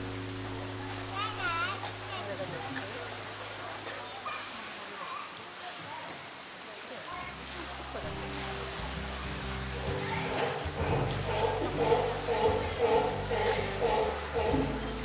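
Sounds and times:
cicadas buzzing: 0.0 - 15.0
rhythmic pulsing sound: 8.0 - 15.0.

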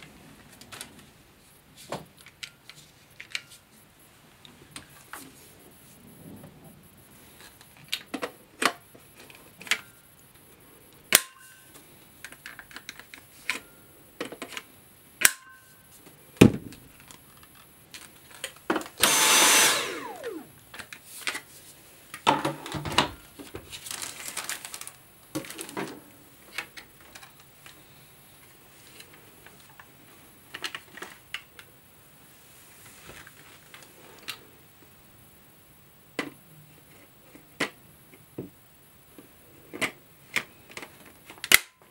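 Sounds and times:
plastic attachments clicking: 19.0 - 20.5
plastic packaging rustling: 23.4 - 25.9.

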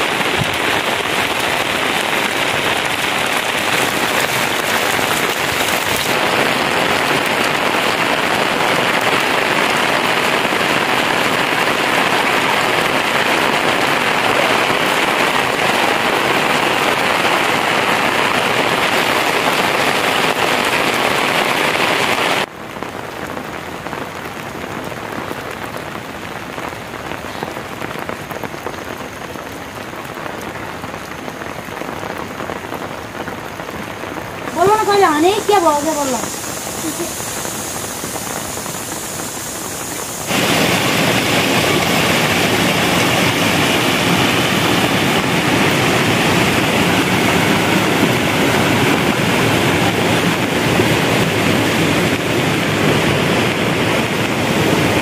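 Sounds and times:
steady rain falling: 0.0 - 55.0.

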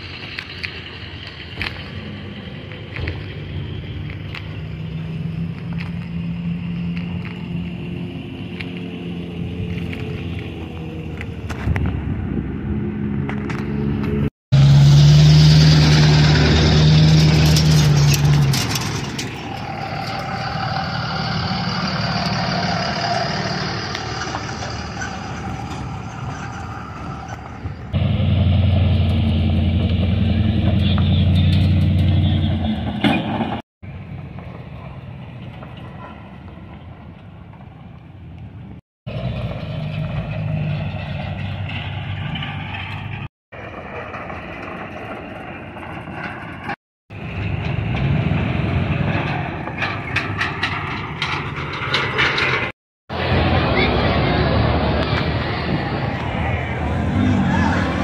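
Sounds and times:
pickup trucks driving past: 0.0 - 58.0.

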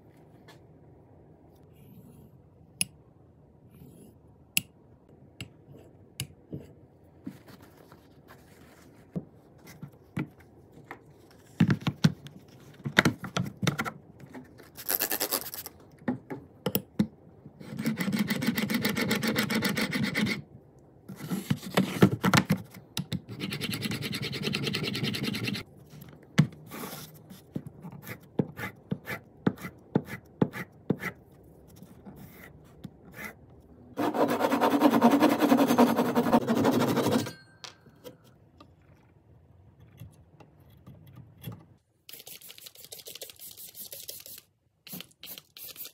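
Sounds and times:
hand saw cutting wood: 34.0 - 37.2.

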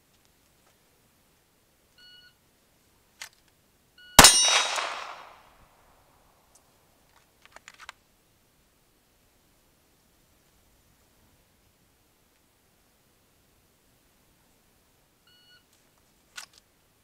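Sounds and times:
pistol shot: 4.2 - 5.5.

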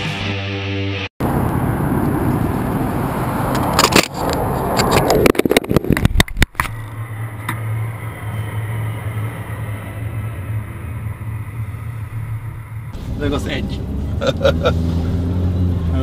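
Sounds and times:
car engine idling: 6.6 - 16.0.

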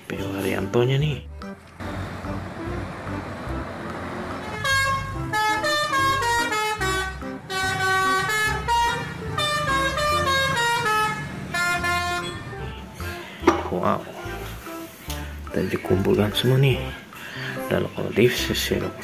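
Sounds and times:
bus passing on a road: 1.4 - 15.0
multi-tone air horn melody: 4.2 - 12.9.

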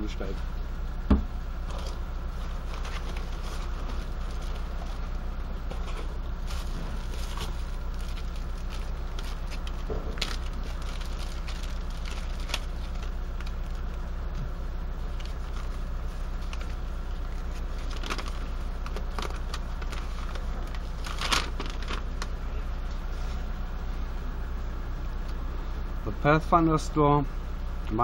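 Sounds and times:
low background rumble: 0.0 - 28.0
plastic and paper crinkling: 1.7 - 13.9, 15.1 - 22.4.

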